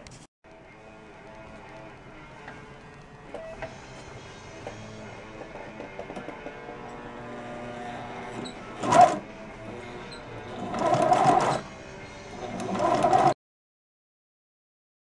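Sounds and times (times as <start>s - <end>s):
sewing machine stitching: 8.3s - 9.2s, 10.5s - 11.7s, 12.4s - 13.4s.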